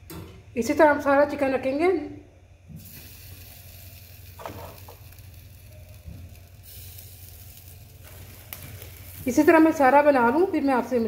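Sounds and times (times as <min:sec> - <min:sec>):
chicken sizzling over flame: 0:02.8 - 0:11.0.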